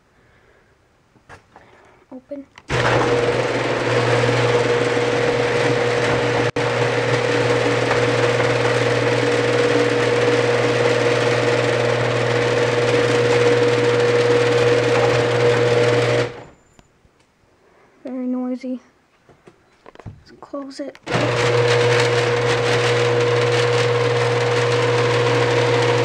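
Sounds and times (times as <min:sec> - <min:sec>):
garage door opener motor whine: 0:02.7 - 0:16.6, 0:21.0 - 0:26.0.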